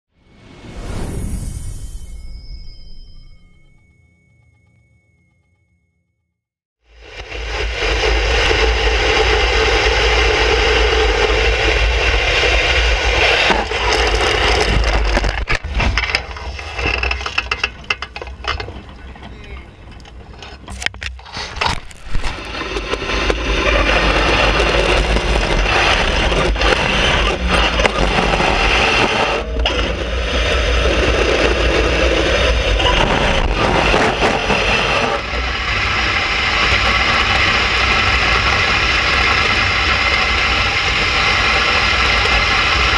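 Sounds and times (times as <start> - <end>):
runners scraping over ice: 20.3 - 29.4
crackling through reeds and snow: 21.2 - 22.8.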